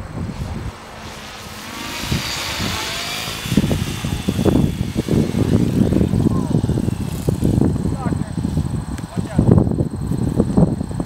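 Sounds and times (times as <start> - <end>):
gusty wind buffeting: 0.0 - 11.0
model helicopter engine and rotors: 0.0 - 11.0.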